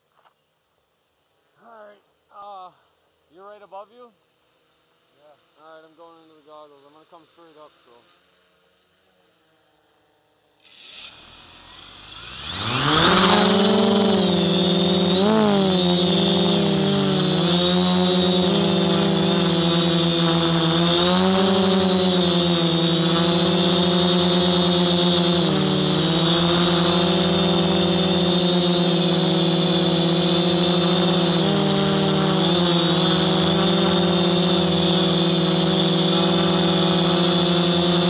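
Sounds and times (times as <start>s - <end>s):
drone motors whining: 10.6s - 38.0s.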